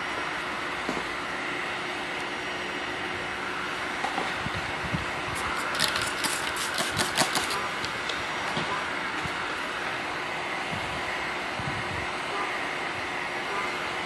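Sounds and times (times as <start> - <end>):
steady background hum: 0.0 - 14.0
spray bottle squirting: 5.4 - 7.9.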